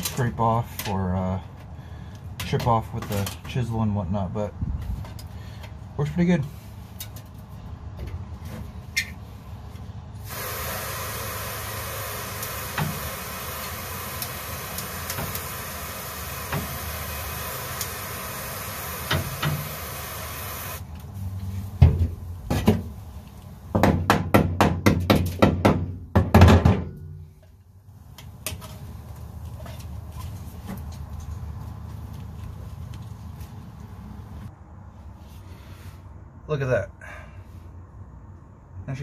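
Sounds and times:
steady hiss: 10.2s - 20.9s.

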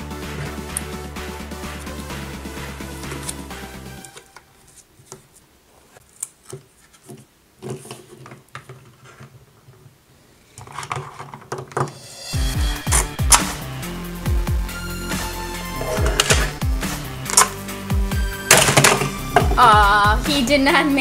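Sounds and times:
background music: 0.0s - 4.7s, 11.8s - 21.0s.

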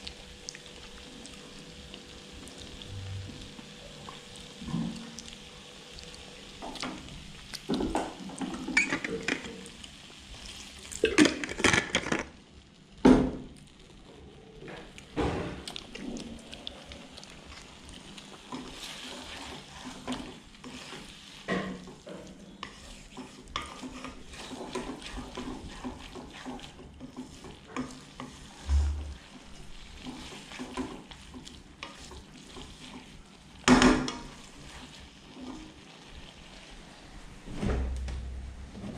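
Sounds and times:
frying sizzle: 0.0s - 37.4s
spatula scraping wok: 17.4s - 33.2s.

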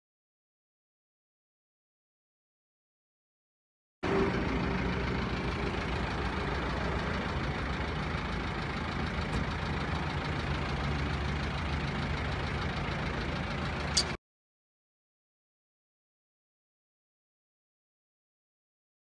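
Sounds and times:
truck engine idling: 4.0s - 14.2s.

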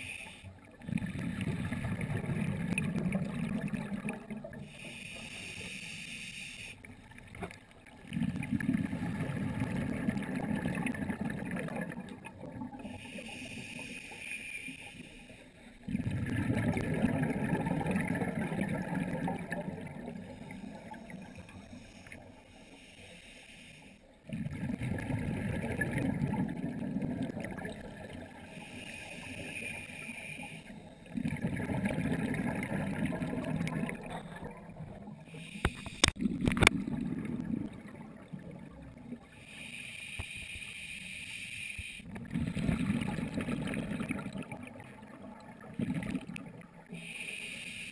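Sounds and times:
regulator hissing inhale: 0.0s - 0.5s, 4.6s - 6.9s, 12.8s - 15.8s, 20.2s - 24.2s, 28.4s - 31.1s, 35.2s - 36.2s, 39.4s - 42.1s, 46.9s - 47.9s
rush of exhaled bubbles: 0.8s - 4.7s, 7.9s - 13.0s, 15.8s - 21.8s, 24.2s - 28.5s, 31.1s - 39.4s, 42.0s - 47.0s.

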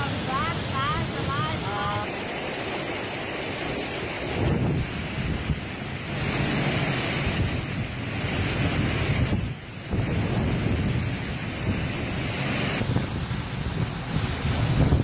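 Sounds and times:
strong wind buffeting microphone: 3.8s - 15.0s.

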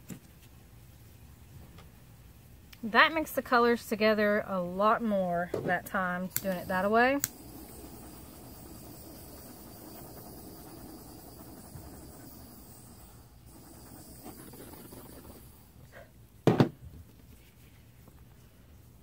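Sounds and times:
torch flame hissing: 6.2s - 16.0s.

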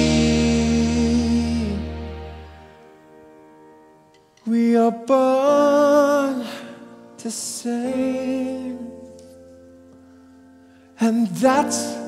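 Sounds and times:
stage musical music: 0.0s - 4.7s.

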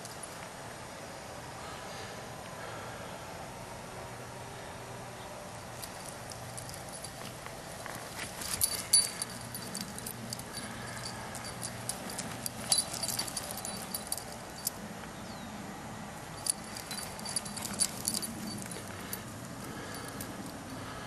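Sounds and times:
steady low hum: 0.0s - 21.0s
light metallic jingle: 5.7s - 15.5s, 16.2s - 21.0s.

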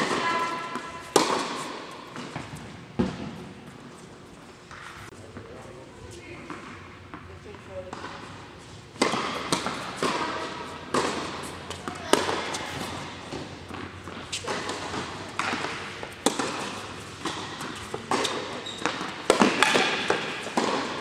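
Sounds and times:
tennis balls struck and bouncing: 0.0s - 3.5s, 8.9s - 21.0s.

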